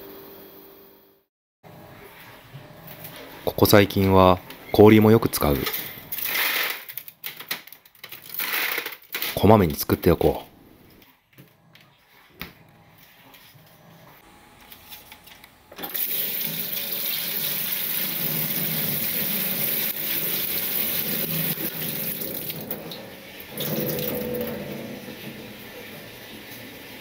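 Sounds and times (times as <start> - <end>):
tap water running into trays: 15.8 - 27.0.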